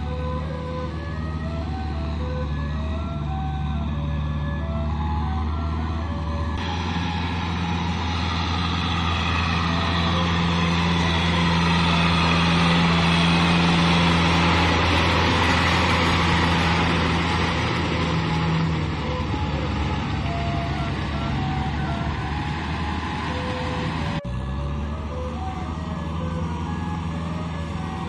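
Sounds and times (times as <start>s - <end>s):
tractor diesel engine running: 0.0s - 28.0s
tiller churning mud: 5.3s - 24.2s.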